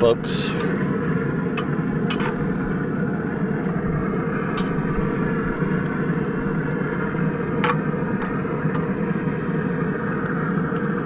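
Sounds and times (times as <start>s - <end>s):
grill fan humming: 0.0s - 11.0s.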